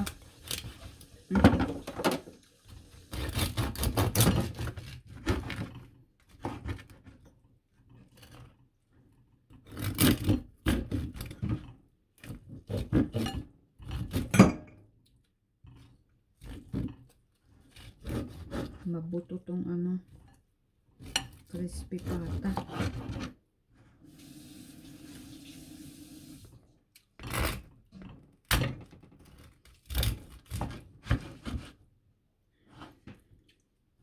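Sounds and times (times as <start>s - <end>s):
knife crunching through crispy skin: 29.2s - 31.4s.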